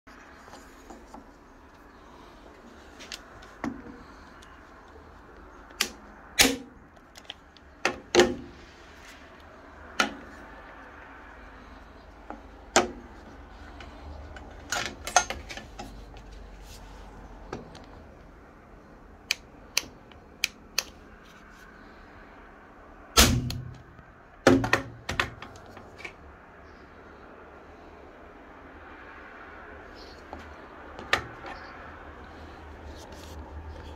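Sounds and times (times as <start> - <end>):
staplers firing into wood: 5.8 - 6.8, 23.2 - 23.8.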